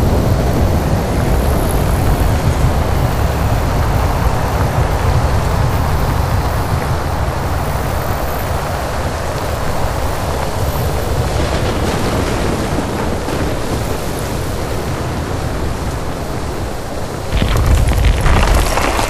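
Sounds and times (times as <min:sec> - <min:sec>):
dense rushing noise: 0:00.0 - 0:19.0
deep low rumble: 0:17.3 - 0:19.0.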